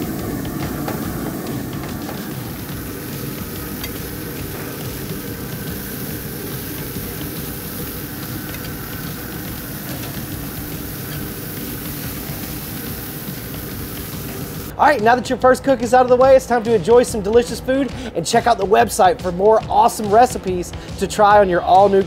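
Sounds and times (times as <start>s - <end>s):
grill fan and fire rushing: 0.0s - 14.8s.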